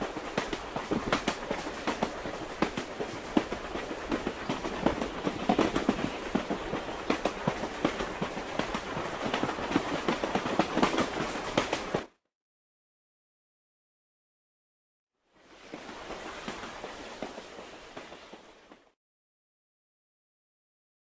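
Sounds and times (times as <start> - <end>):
train running noise: 0.0 - 12.1, 15.7 - 18.9.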